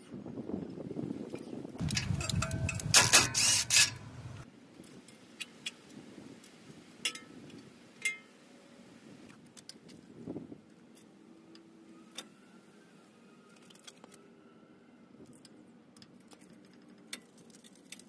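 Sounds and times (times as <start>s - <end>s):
pliers clinking against metal: 1.8s - 4.0s.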